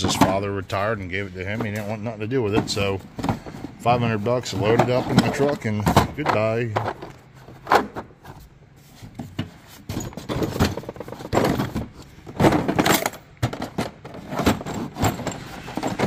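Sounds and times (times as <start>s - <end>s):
tools clattering in tool box: 9.7s - 16.0s.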